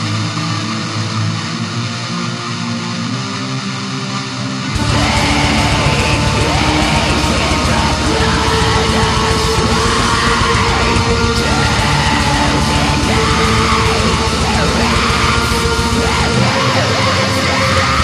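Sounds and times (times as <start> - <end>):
metal band playing: 4.6 - 18.0
harsh yelled vocals: 4.7 - 18.0.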